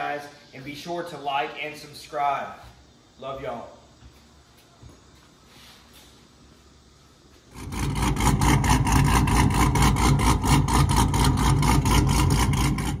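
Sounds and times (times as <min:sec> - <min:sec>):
engine running with rhythmic exhaust: 0:07.4 - 0:13.0.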